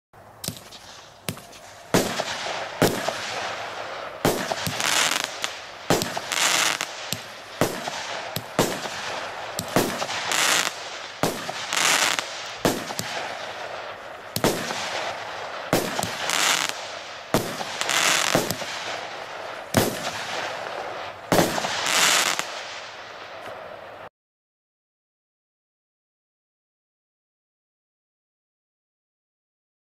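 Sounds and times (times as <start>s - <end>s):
fireworks bangs: 0.4s - 24.1s
hissing crackle of stars: 0.4s - 24.1s.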